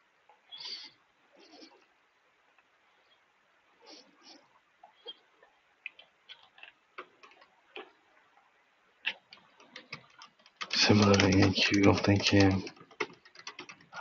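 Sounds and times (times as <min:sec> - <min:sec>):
keyboard typing: 0:09.1 - 0:14.0.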